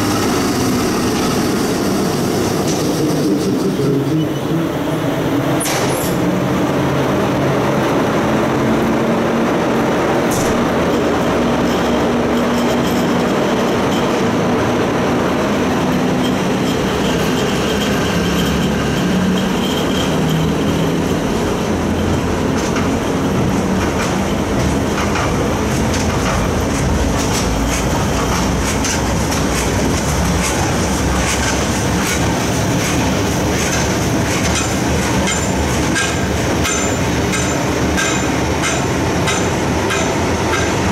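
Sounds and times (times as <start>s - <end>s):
freight train wheels rumbling: 0.0s - 40.9s
wheels clicking over rail joints: 15.7s - 40.9s
high wheel squeal: 15.9s - 22.3s.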